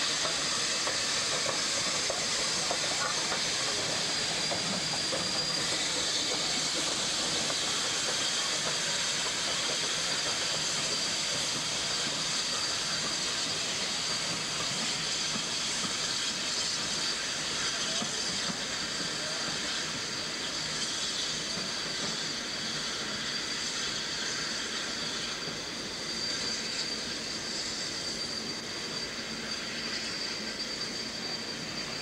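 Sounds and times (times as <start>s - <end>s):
steam hissing: 0.0s - 32.0s
thin whistle-like tone: 0.0s - 32.0s
train wheel clatter: 0.0s - 32.0s.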